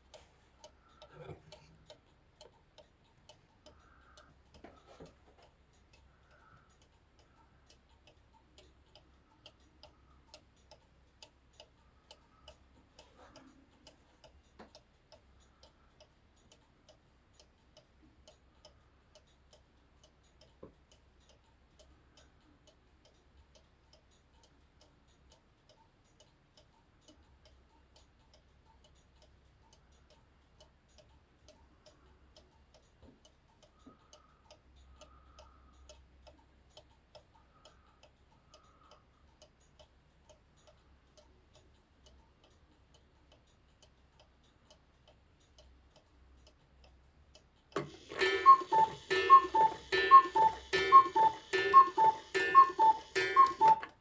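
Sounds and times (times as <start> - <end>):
clock ticking: 0.0 - 54.0
clock strike: 47.8 - 53.9
cuckoo clock calls: 47.8 - 54.0.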